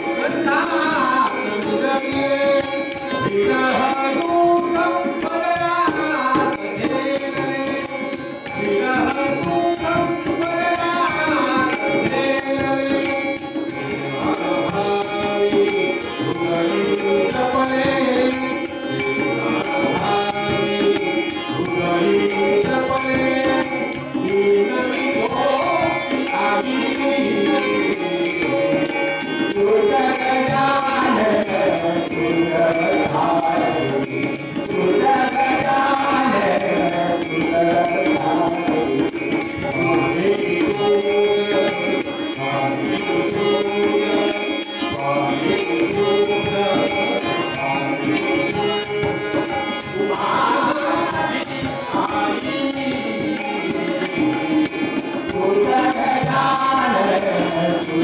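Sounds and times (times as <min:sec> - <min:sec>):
harmonium tones: 0:00.0 - 0:58.0
high ticking beat: 0:00.0 - 0:58.0
man singing: 0:00.0 - 0:58.0
hand drum: 0:43.2 - 0:58.0.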